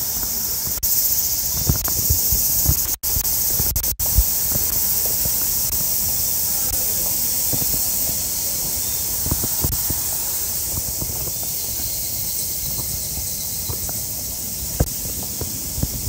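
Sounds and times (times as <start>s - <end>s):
footsteps on wet pavement: 0.0s - 16.0s
high-pitched hiss: 0.0s - 16.0s.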